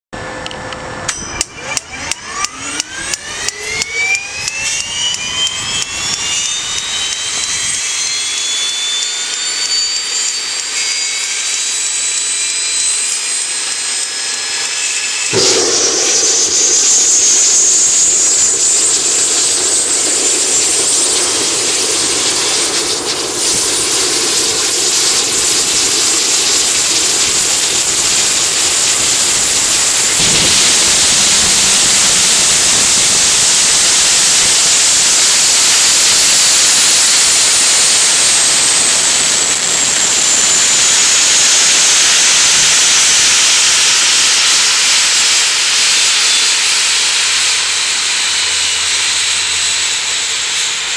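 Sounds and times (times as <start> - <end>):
turbine engine hiss and whine: 0.2 - 50.9
sharp click: 0.4 - 7.6.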